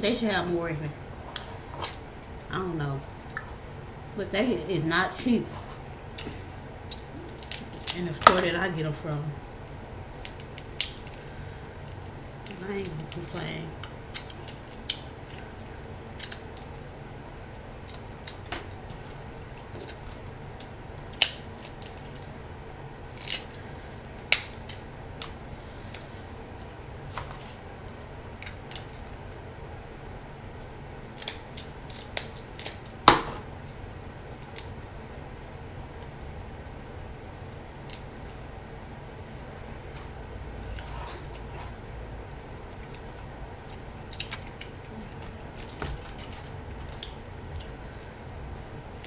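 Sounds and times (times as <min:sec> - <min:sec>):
crab shells cracking by hand: 0:06.8 - 0:08.4, 0:09.4 - 0:15.4, 0:16.1 - 0:17.0, 0:19.6 - 0:29.1, 0:31.0 - 0:33.4, 0:34.4 - 0:34.9, 0:42.7 - 0:47.8.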